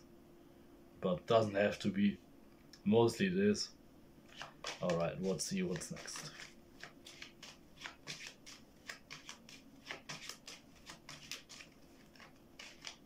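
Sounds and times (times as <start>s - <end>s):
cards being shuffled by hand: 4.3s - 13.0s.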